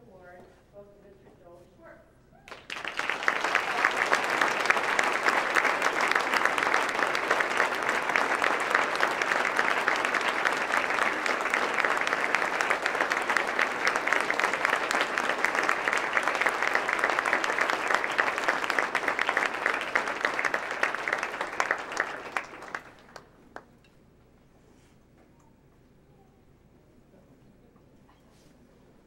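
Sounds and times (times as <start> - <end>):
audience applauding: 2.5 - 23.7.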